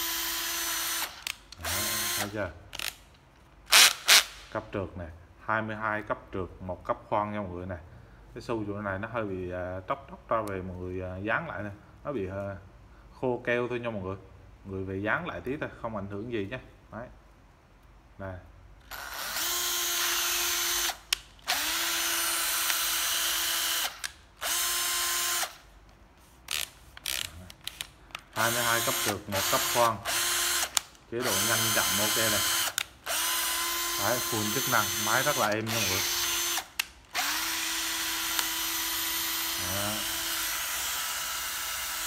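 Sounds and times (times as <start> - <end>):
cordless drill motor whine: 0.0 - 2.9, 18.9 - 25.6, 28.4 - 42.0.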